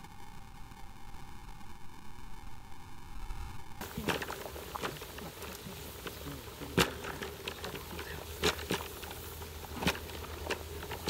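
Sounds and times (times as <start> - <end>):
water boiling in a wok: 3.8 - 11.0.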